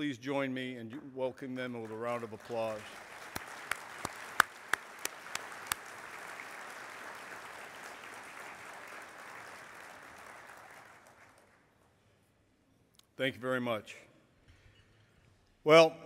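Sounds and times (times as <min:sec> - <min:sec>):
sharp claps near microphone: 0:01.6 - 0:11.9
audience applauding: 0:01.7 - 0:11.8.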